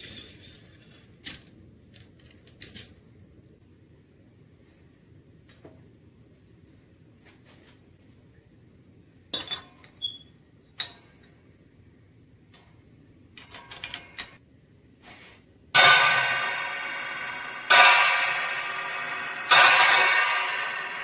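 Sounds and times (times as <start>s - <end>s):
cymbals struck with drumstick: 15.8s - 21.0s.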